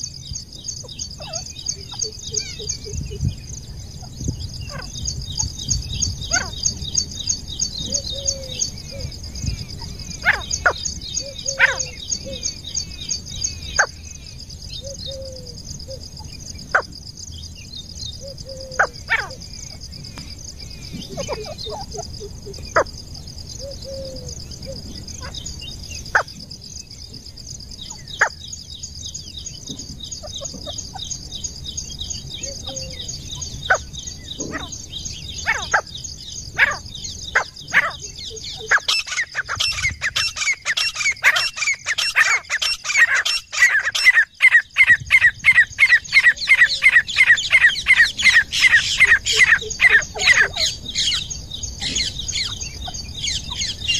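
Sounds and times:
high insect drone: 0.0s - 53.9s
bird calling rapidly: 36.6s - 53.9s.

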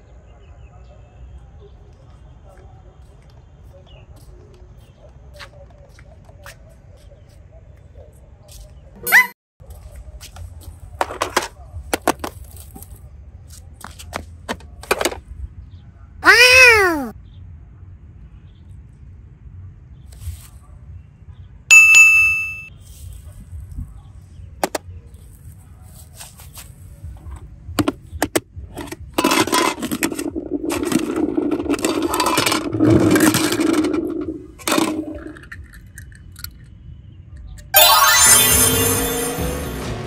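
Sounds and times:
bright chime: 21.7s - 22.7s, 37.8s - 40.0s.

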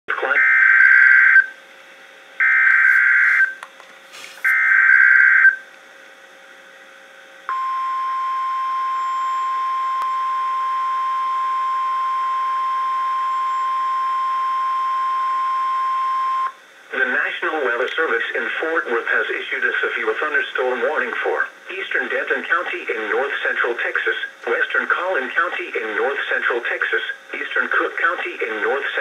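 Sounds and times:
steady warning alarm tone: 0.3s - 1.6s, 2.4s - 3.6s, 4.5s - 5.6s, 7.5s - 16.6s.

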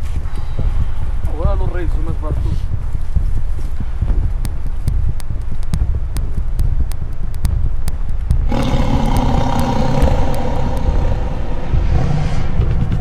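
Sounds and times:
low rumble: 0.0s - 13.0s
scattered clicks: 4.2s - 11.7s
loud droning held tones: 8.4s - 13.0s.

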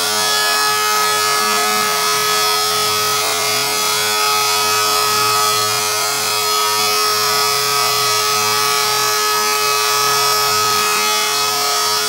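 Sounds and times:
router spindle motor whine: 0.0s - 12.0s.

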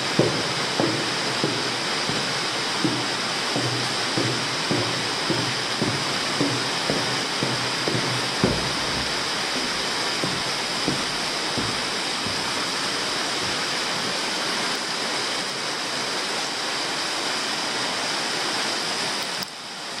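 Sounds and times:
soft low thuds: 0.0s - 14.2s
steady rushing noise: 0.0s - 16.9s.

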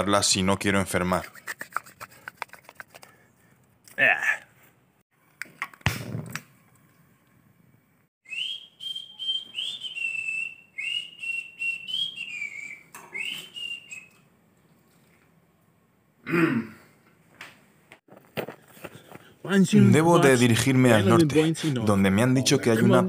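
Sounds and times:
person whistling a tune: 8.2s - 14.2s.

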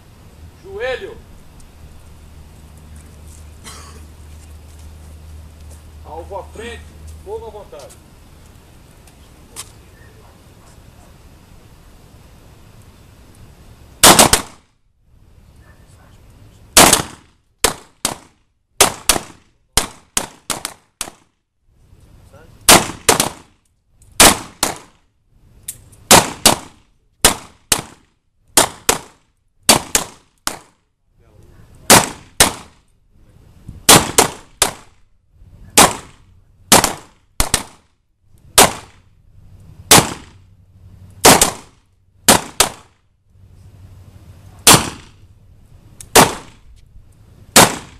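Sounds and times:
gunshots with ringing tail: 14.0s - 14.6s, 16.8s - 21.2s, 22.7s - 23.5s, 31.9s - 32.7s, 33.9s - 34.9s, 35.8s - 37.8s, 38.6s - 39.0s, 39.9s - 40.4s, 41.2s - 41.7s, 42.3s - 42.9s, 44.6s - 45.2s, 46.1s - 46.6s, 47.6s - 47.9s.

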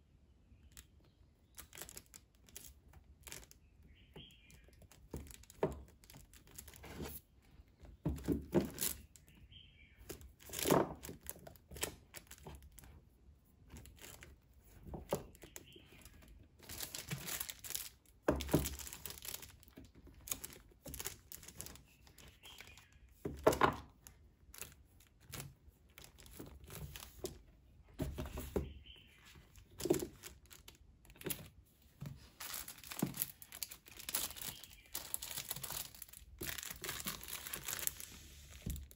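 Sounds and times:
books scraping and rustling: 6.6s - 7.3s, 36.4s - 38.9s
books thunking on shelf: 28.0s - 28.8s.

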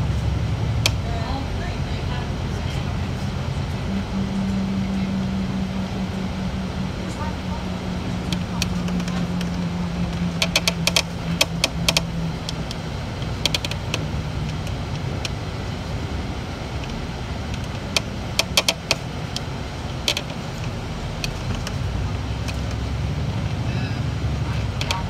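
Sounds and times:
bus engine rumble: 0.0s - 25.0s
low hum: 0.0s - 25.0s
sharp clicking rattles: 7.1s - 23.6s, 24.4s - 25.0s.

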